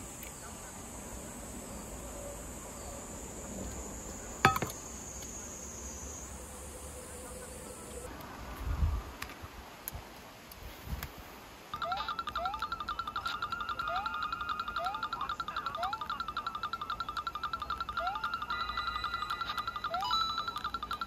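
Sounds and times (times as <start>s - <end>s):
high-pitched insect drone: 0.0s - 8.1s, 11.8s - 21.0s.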